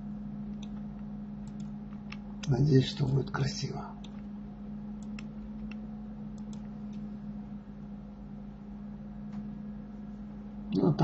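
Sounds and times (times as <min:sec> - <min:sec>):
steady low hum: 0:00.0 - 0:11.0
keyboard and mouse clicks: 0:00.5 - 0:02.6, 0:04.0 - 0:04.3, 0:05.0 - 0:05.8, 0:06.4 - 0:07.0.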